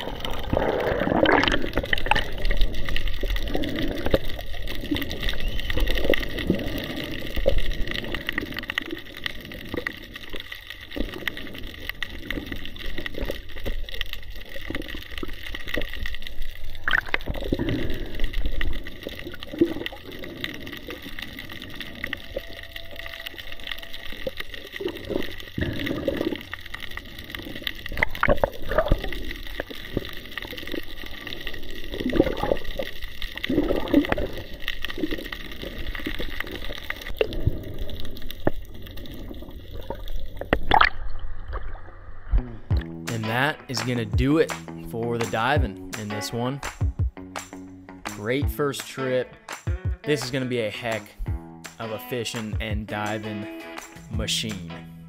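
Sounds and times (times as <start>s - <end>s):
water gurgling underwater: 0.0s - 43.1s.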